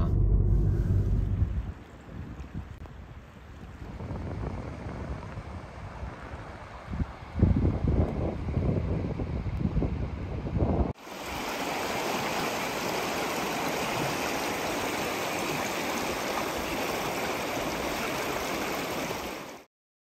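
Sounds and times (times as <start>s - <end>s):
wind buffeting microphone: 0.0s - 12.2s
stream rushing over rocks: 11.0s - 19.7s.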